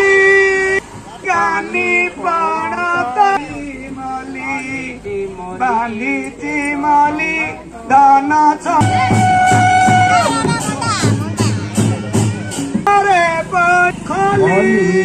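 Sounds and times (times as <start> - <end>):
person singing: 12.9 - 15.0.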